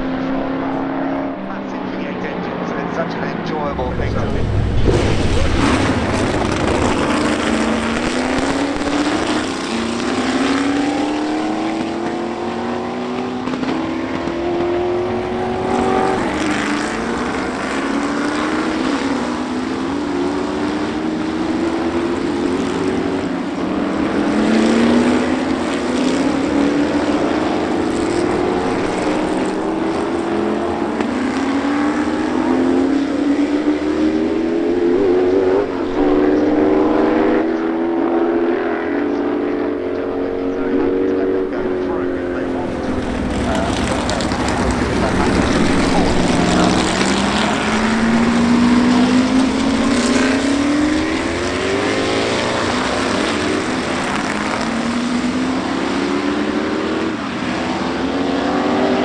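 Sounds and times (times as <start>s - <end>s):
race cars accelerating past: 0.0s - 59.0s.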